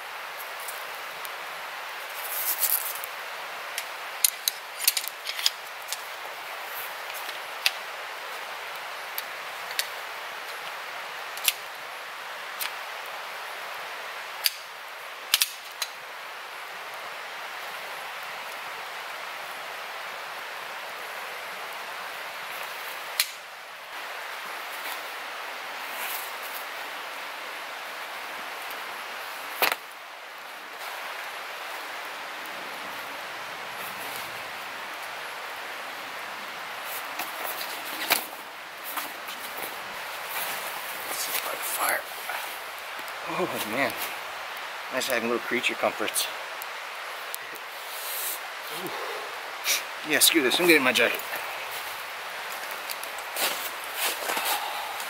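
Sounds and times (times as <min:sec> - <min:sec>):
campfire crackling: 0:00.0 - 0:55.0
steady hiss: 0:00.0 - 0:55.0
sharp fire pops: 0:15.3 - 0:16.0, 0:23.2 - 0:23.4.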